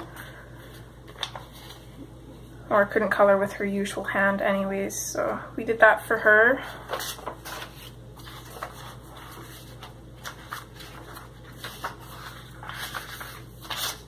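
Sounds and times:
book pages turning: 0.6s - 2.1s, 6.8s - 14.0s.

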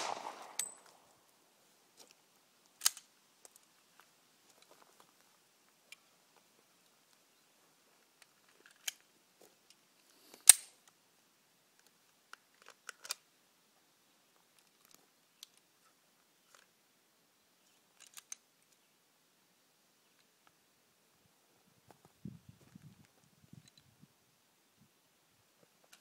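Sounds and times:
loud crack: 0.0s - 1.1s
pistol metallic clicks: 0.0s - 1.1s, 2.8s - 3.1s, 10.4s - 10.8s.

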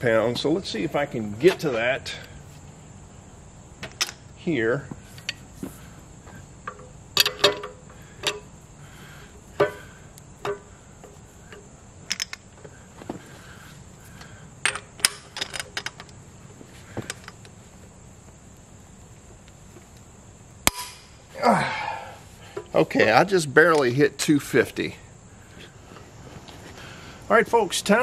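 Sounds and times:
faint high-pitched hum: 0.0s - 28.0s
metallic clicks of wrenches: 6.6s - 8.5s, 11.5s - 12.7s, 14.6s - 16.2s.

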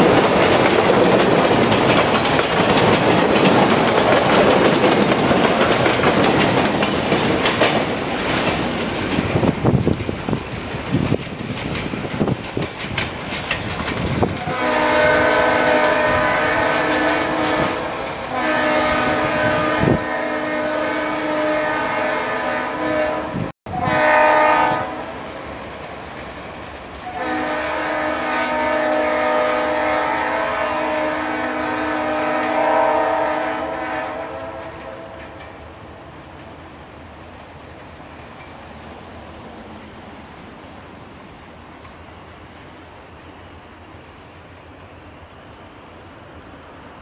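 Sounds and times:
train wheels clicking on rails: 0.0s - 19.9s, 24.9s - 47.0s
train rumbling: 0.0s - 47.0s
locomotive air horn blasts: 14.4s - 25.2s, 27.0s - 35.3s.

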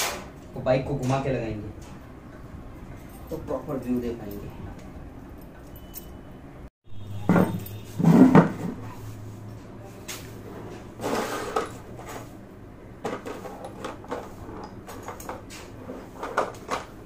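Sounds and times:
tools and parts knocking: 7.2s - 8.8s, 13.0s - 15.5s.

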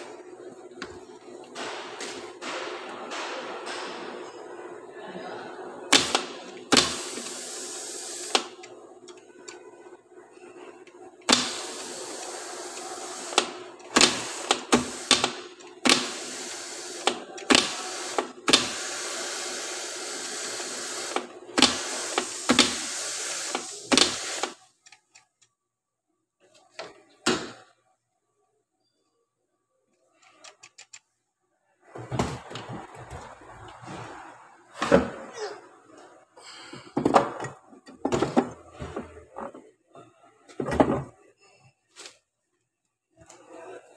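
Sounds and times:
steady hiss: 5.9s - 8.5s, 11.3s - 24.6s.

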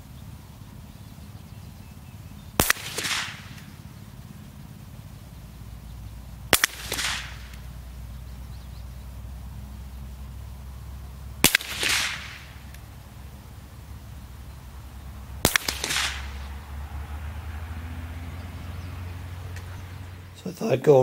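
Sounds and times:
rifle shots: 2.6s - 3.9s, 6.5s - 7.7s, 11.4s - 12.8s, 15.4s - 16.6s.

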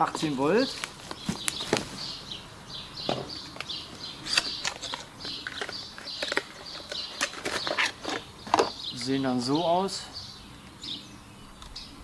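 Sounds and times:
songbirds singing and chirping: 0.0s - 12.0s
packaging clicks and rustles: 4.3s - 8.7s.

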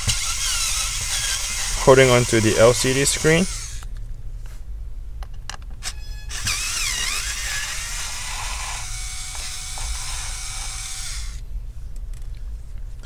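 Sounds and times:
electric screwdriver motor whine: 0.0s - 3.8s, 5.8s - 11.4s.

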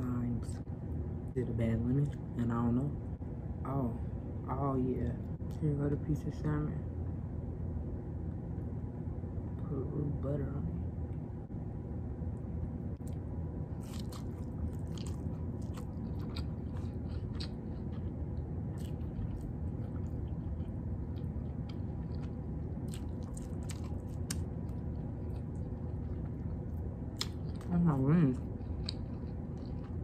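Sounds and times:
steady low hum: 0.0s - 30.0s
wet chewing: 13.0s - 30.0s.

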